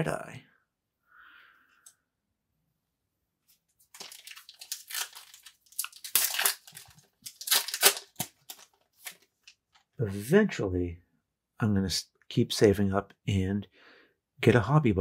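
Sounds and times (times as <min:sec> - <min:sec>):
foil wrapper tearing and crinkling: 0:03.9 - 0:09.6.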